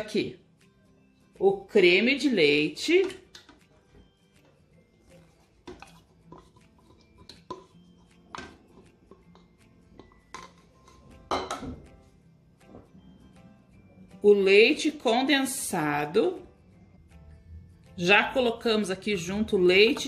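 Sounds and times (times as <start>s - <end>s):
faint background music: 0.0s - 20.0s
plate and spatula clinking on blender jar: 7.2s - 11.8s.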